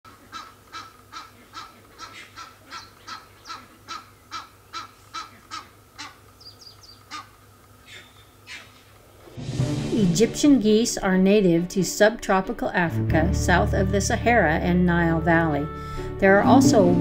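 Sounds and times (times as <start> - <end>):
goose honking: 0.1 - 6.2.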